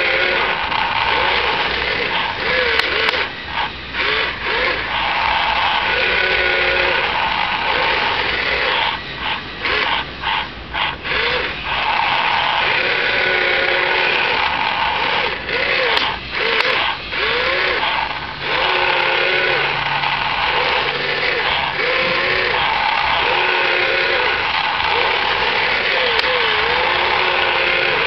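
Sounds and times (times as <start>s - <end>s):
small electric motors whirring: 0.0s - 28.0s.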